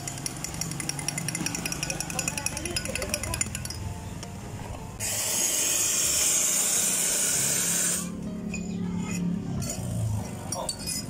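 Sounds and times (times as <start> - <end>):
steam wand hissing: 5.0 - 8.2.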